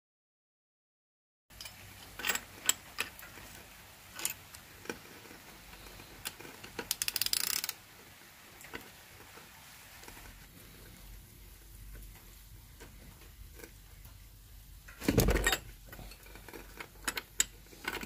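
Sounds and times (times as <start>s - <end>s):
ratchet clicks: 6.2s - 7.8s.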